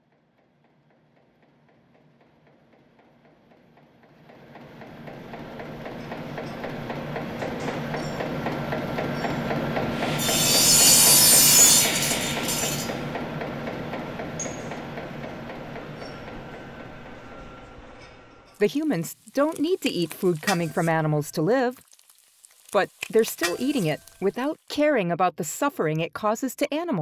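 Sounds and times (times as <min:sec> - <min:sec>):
factory machinery clattering: 0:00.6 - 0:21.2.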